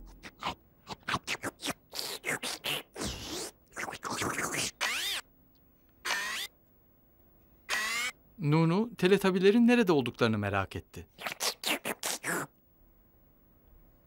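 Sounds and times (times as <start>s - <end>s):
cartoon scratchy rasps: 0.1s - 5.3s, 6.0s - 6.5s, 7.7s - 8.2s, 11.1s - 12.5s.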